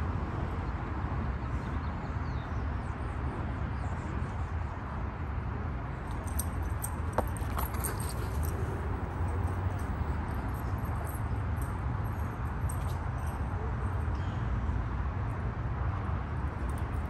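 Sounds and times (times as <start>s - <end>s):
metallic jingling and clicks: 6.0s - 13.4s.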